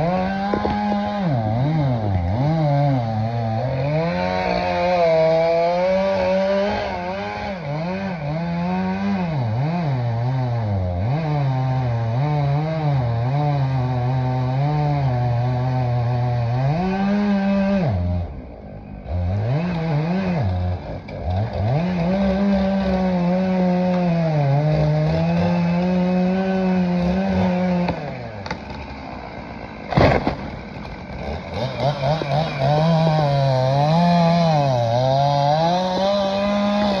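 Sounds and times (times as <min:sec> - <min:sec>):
chainsaw cutting wood: 0:00.0 - 0:37.0
loud thud: 0:29.9 - 0:30.7.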